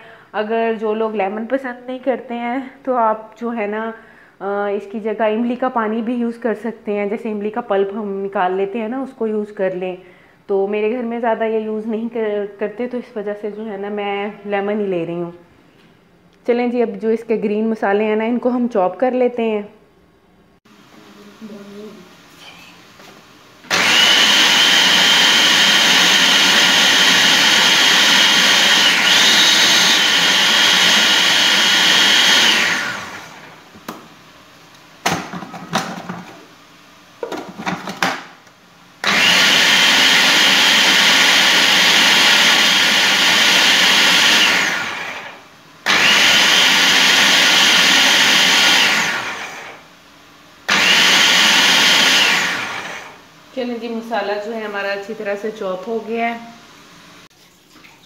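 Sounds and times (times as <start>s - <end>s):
food processor motor whining: 23.7s - 33.7s, 39.0s - 49.9s, 50.6s - 53.3s.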